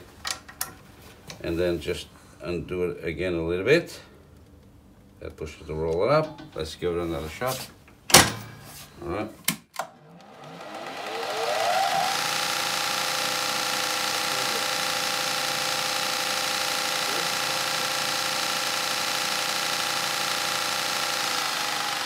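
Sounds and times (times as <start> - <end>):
floor sander whining: 9.8 - 22.0.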